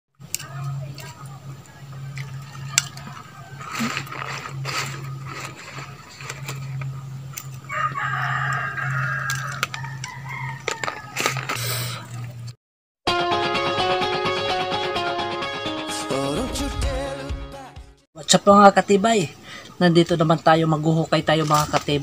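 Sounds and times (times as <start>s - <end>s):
steady low hum: 0.2s - 10.0s
rooster crowing: 2.2s - 4.2s, 7.5s - 11.5s.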